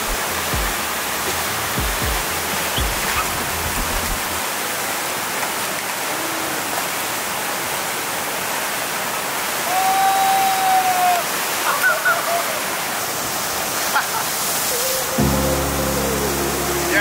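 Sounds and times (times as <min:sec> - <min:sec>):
water rushing and churning: 0:00.0 - 0:17.0.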